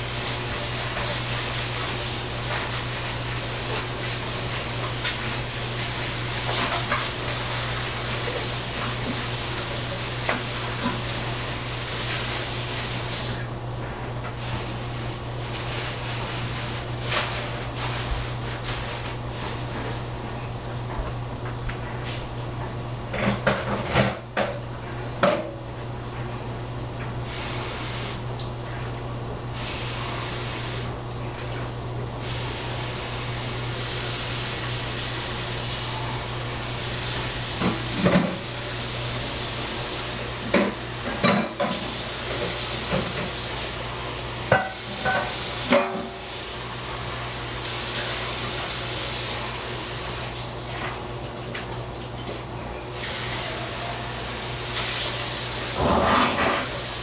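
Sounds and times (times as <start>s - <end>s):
food cooking hiss: 27.3s - 28.3s, 29.6s - 31.0s, 52.9s - 57.0s.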